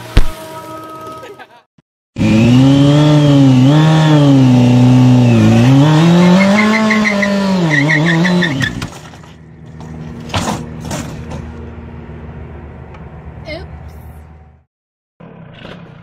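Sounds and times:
motorcycle engine revving: 2.2s - 8.9s.

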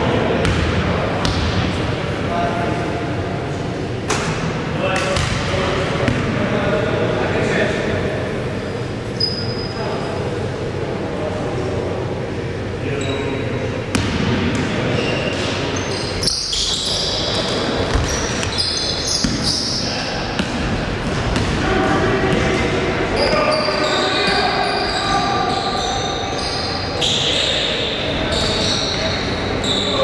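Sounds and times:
voices of players and spectators: 0.0s - 30.0s
basketball bouncing on court: 0.4s - 1.6s, 5.0s - 6.3s, 13.9s - 15.5s, 17.3s - 22.6s.

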